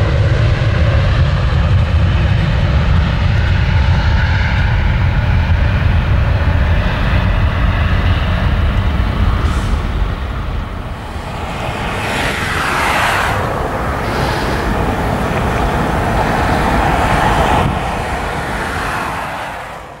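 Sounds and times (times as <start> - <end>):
jet engines roaring: 0.0 - 20.0
falling whoosh: 9.4 - 19.8.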